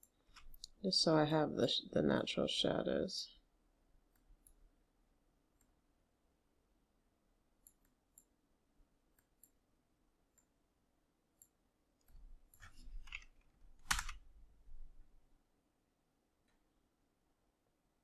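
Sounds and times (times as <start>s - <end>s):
mouse and keyboard clicks: 11.4s - 14.2s.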